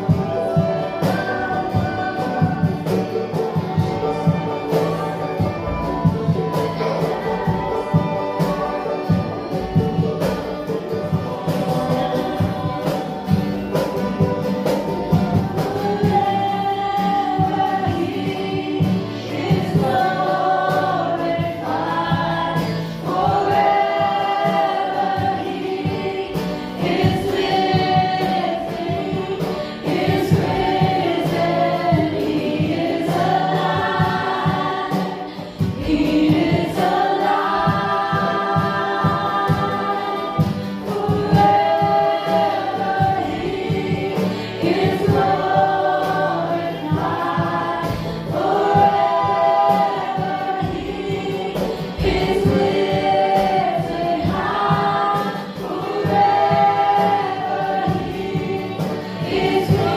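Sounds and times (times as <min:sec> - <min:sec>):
group of voices singing: 0:00.0 - 0:59.9
instrumental accompaniment: 0:00.0 - 0:59.9.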